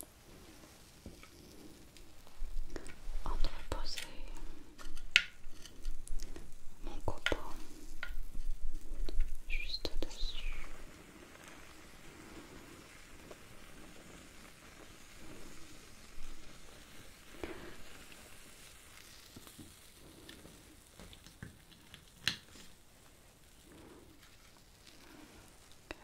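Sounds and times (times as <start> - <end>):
burner flame crackling and sizzling: 0.0 - 26.0.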